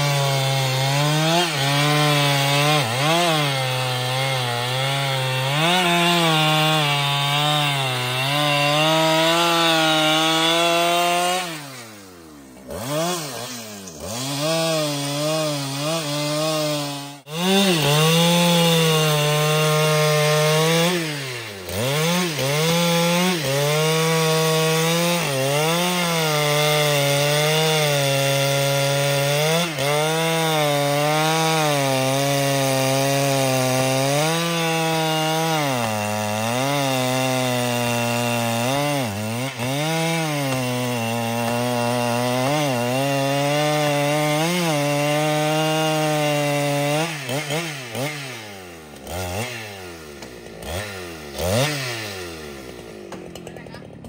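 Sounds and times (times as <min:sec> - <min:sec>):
chainsaw cutting log: 0:00.0 - 0:54.0.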